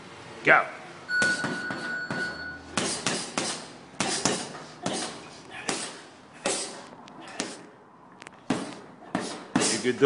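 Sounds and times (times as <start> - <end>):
punches thudding on heavy bag: 1.2 - 6.7.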